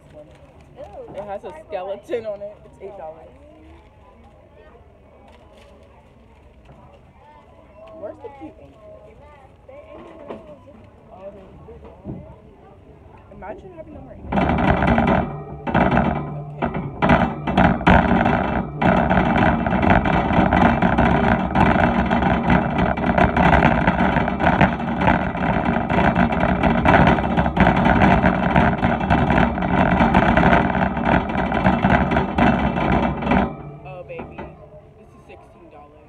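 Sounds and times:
knocks: 14.2 - 34.7.

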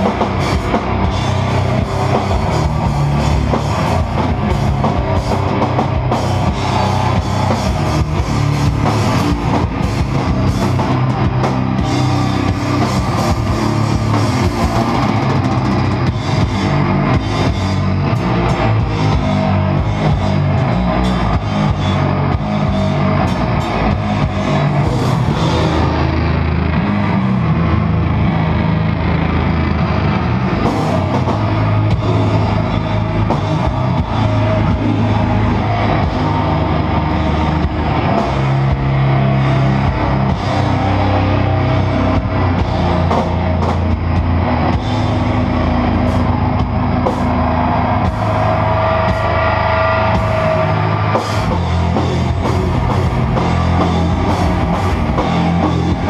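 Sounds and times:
distorted electric guitar chords: 0.0 - 56.0
drum kit: 0.0 - 56.0.

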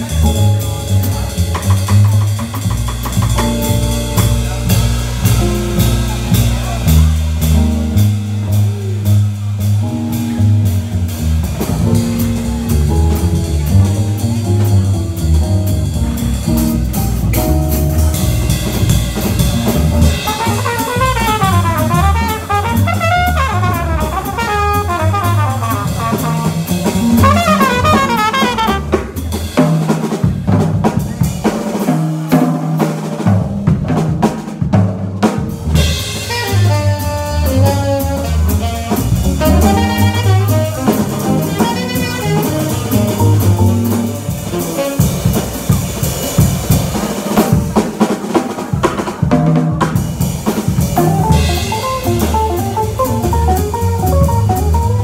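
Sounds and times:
double bass: 0.0 - 55.0
drum kit swinging: 0.0 - 55.0
fast trumpet runs: 20.2 - 29.1
tenor saxophone: 36.3 - 43.2.

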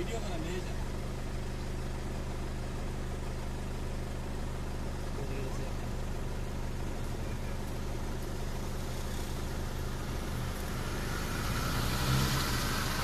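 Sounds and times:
vehicle engines idling: 0.0 - 13.0
jeep moving off: 5.3 - 13.0.

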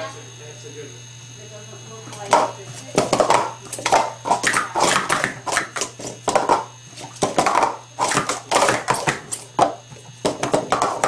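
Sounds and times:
plastic cups clattering: 2.2 - 11.0.

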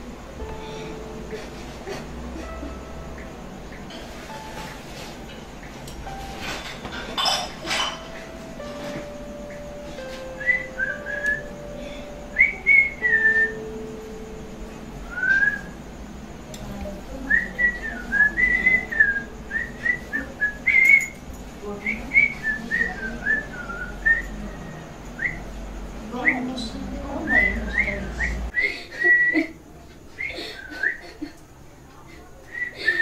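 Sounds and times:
man whistling a tune: 10.0 - 13.8, 15.0 - 15.8, 17.3 - 21.2, 21.9 - 24.4, 25.2 - 25.4, 27.3 - 29.6, 32.5 - 33.0.

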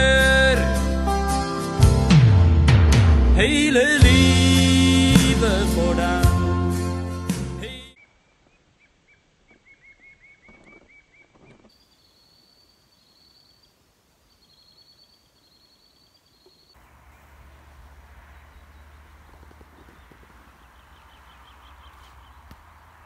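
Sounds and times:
high bird chirps: 8.0 - 23.0
thin trilling bird song: 8.0 - 23.0.

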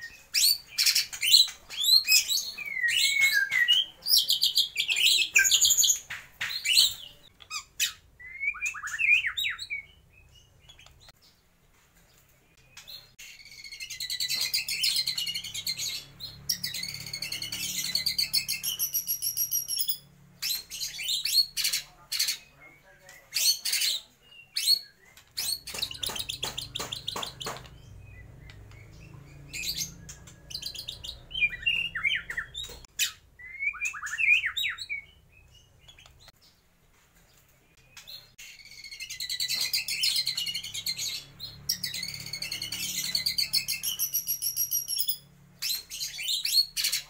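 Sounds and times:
bird singing trills and whistles: 0.0 - 11.1, 12.6 - 36.3, 37.8 - 47.0.

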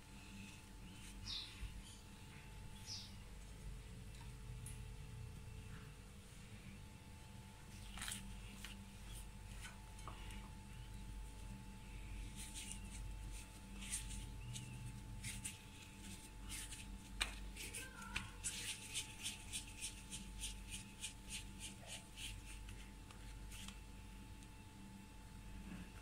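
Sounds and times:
hands rubbing dough: 11.3 - 23.8.

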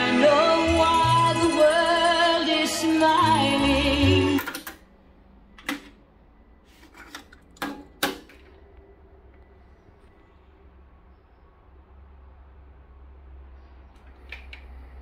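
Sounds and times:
song with singing from cassette deck: 0.0 - 4.8
cassette deck door clicks: 7.6 - 8.5.

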